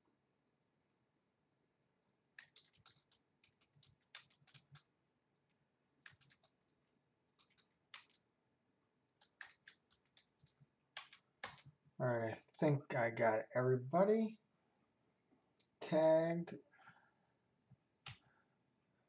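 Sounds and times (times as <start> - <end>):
typing on computer keyboard: 2.4 - 4.9, 6.0 - 6.6, 7.4 - 8.2, 9.2 - 11.7.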